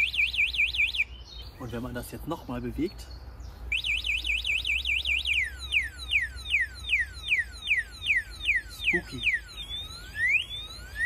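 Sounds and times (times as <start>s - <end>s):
electronic alarm siren: 0.0s - 1.1s, 3.7s - 11.0s.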